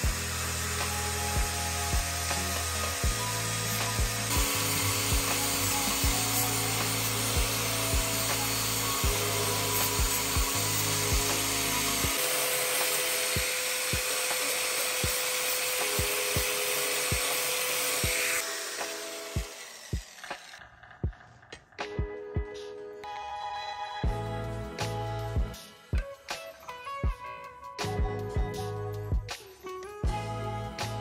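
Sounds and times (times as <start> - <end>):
angle grinder grinding steel: 0.0 - 21.0
background music with a beat: 0.0 - 31.0.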